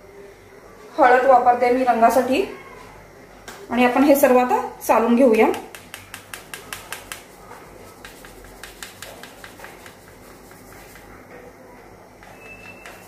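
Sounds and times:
sieve tapping on steel plate: 0:05.5 - 0:07.4, 0:08.0 - 0:11.1.

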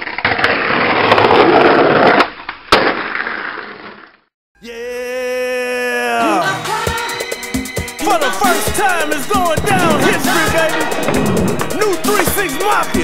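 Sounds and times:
skateboard wheels rolling on asphalt: 0:00.0 - 0:04.3, 0:09.7 - 0:12.4.

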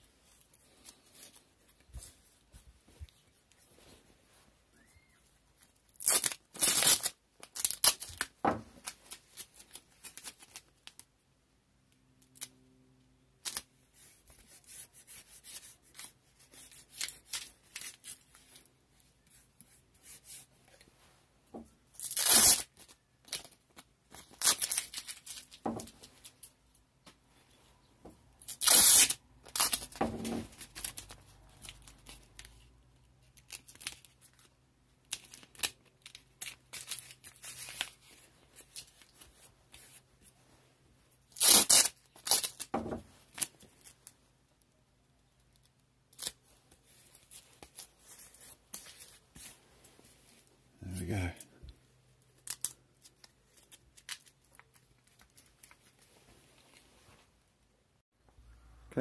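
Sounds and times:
tape rustling and crinkling: 0:00.0 - 0:11.1, 0:13.4 - 0:27.2, 0:27.8 - 0:57.7
tape ripping off roll: 0:05.9 - 0:09.0, 0:22.0 - 0:22.8, 0:28.5 - 0:31.1, 0:41.3 - 0:43.5.

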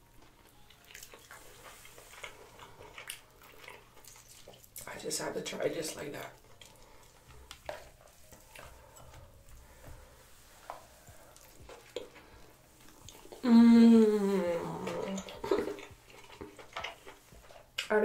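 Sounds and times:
crab legs clicking and crackling: 0:00.3 - 0:09.4, 0:14.8 - 0:18.0
person humming mmm: 0:13.1 - 0:15.9.

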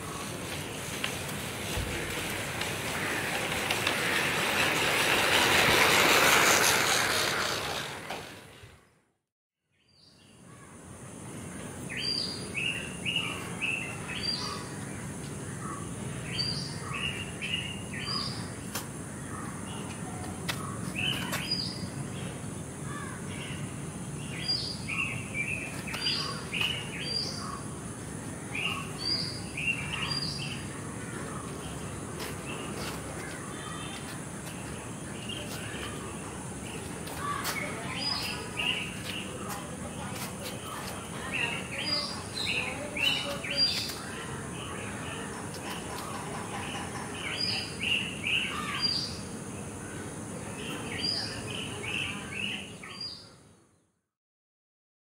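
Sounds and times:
loud rushing noise: 0:00.0 - 0:08.8
birds chirping: 0:09.8 - 0:53.4.

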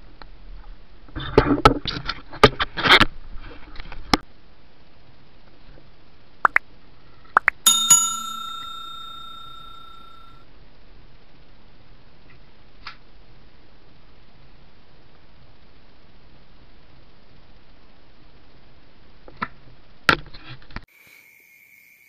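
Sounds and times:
bell ding: 0:07.7 - 0:10.4.

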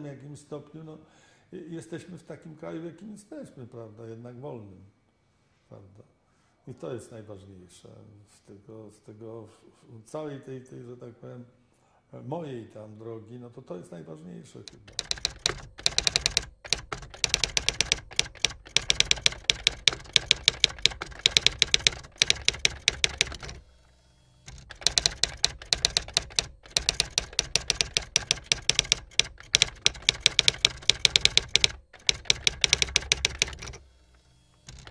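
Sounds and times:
typewriter keys clattering: 0:14.7 - 0:23.6, 0:24.5 - 0:33.8.

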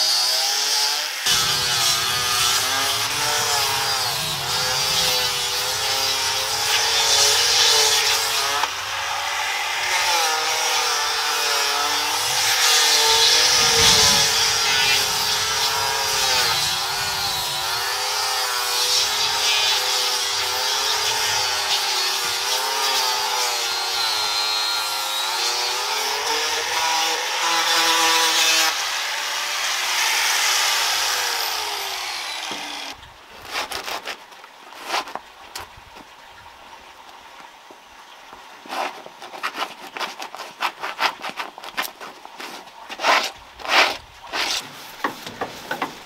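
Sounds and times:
sanding block scratching wood: 0:01.3 - 0:08.7, 0:09.7 - 0:28.7, 0:38.7 - 0:46.0.

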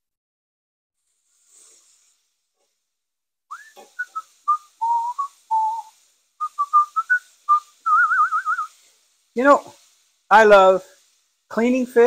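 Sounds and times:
man whistling a tune: 0:03.5 - 0:08.7.

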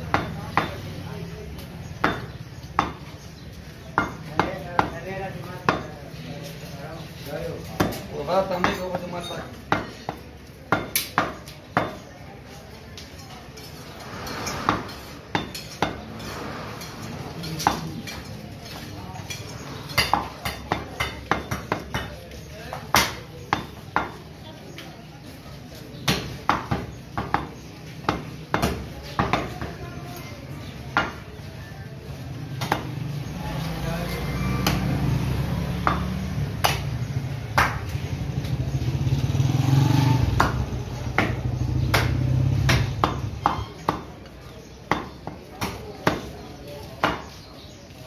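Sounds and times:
cleaver chopping on wooden block: 0:00.1 - 0:00.8, 0:09.7 - 0:12.0, 0:20.0 - 0:24.2, 0:26.0 - 0:29.8, 0:30.9 - 0:31.2, 0:32.6 - 0:32.9, 0:35.8 - 0:37.0, 0:37.6 - 0:37.9, 0:40.4 - 0:44.2, 0:44.8 - 0:46.4, 0:47.0 - 0:47.4.

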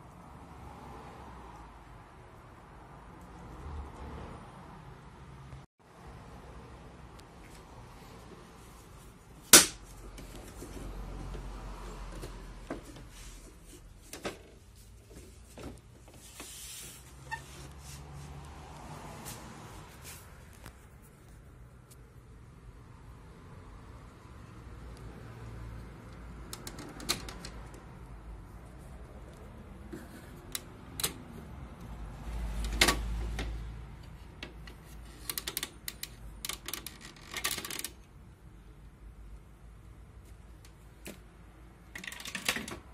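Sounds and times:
plastic clicks and rattles: 0:34.4 - 0:38.1, 0:42.0 - 0:42.9.

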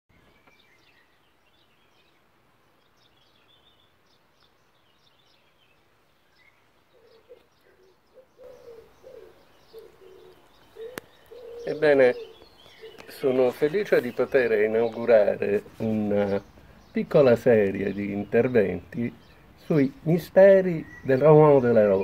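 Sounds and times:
small birds chirping: 0:00.1 - 0:22.0
dove cooing: 0:06.9 - 0:16.5.

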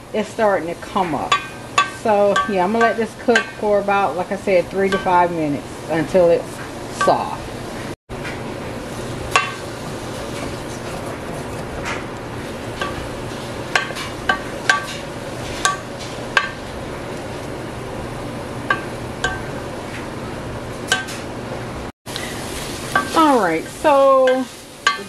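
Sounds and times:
vegetables sizzling in a pan: 0:08.8 - 0:10.9, 0:22.1 - 0:25.0.

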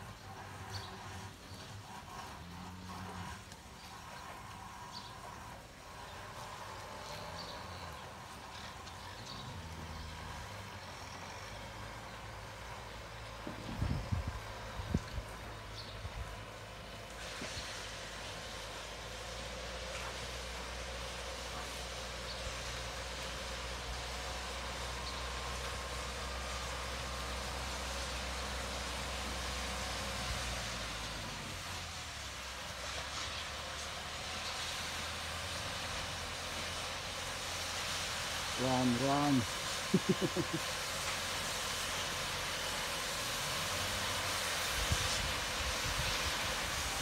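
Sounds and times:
even hiss: 0:00.0 - 0:47.0
tractor engine running: 0:00.0 - 0:47.0.

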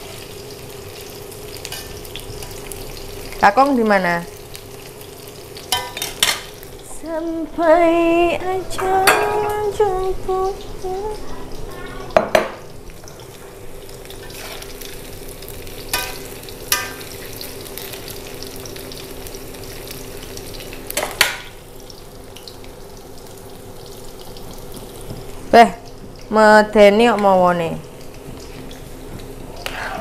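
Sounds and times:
vegetables sizzling in a wok: 0:00.0 - 0:30.0.

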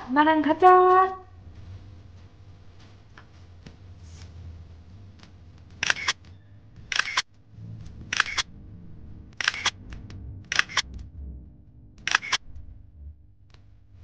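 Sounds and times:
faint low hum: 0:00.0 - 0:14.0
camera shutter clicks: 0:05.8 - 0:06.2, 0:06.9 - 0:07.3, 0:08.1 - 0:08.4, 0:09.4 - 0:09.8, 0:10.5 - 0:10.8, 0:12.1 - 0:12.4.

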